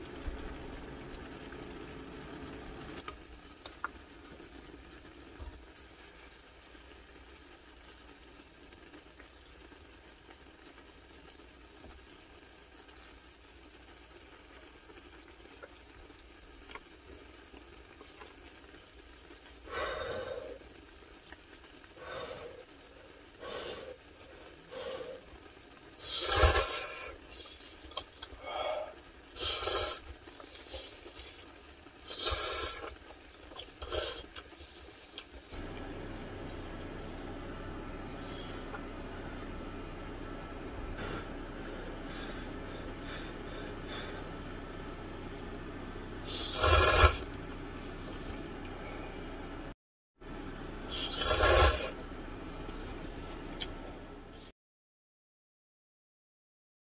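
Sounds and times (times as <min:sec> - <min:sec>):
person eating noodles breathily: 0:46.3 - 0:49.4, 0:50.9 - 0:52.0.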